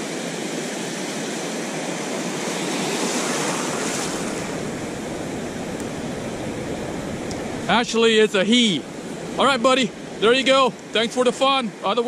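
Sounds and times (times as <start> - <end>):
ocean surf washing in: 0.0 - 12.0
low rumble: 4.2 - 8.2.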